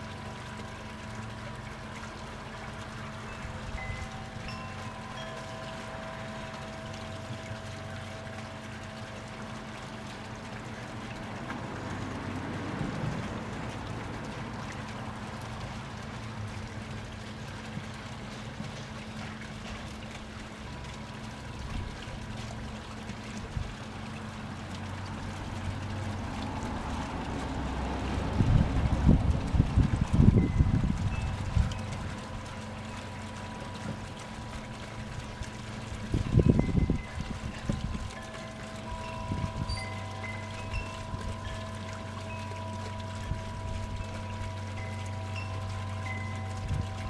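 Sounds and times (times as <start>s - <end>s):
wind buffeting microphone: 28.2s - 32.4s, 35.9s - 38.2s, 38.9s - 41.6s, 46.5s - 47.0s.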